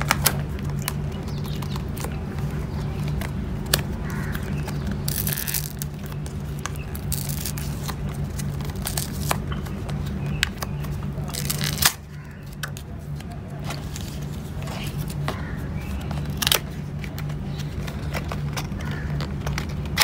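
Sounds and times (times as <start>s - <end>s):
steady low hum: 0.0s - 20.0s
paper seal tearing: 5.0s - 9.5s, 11.2s - 12.1s.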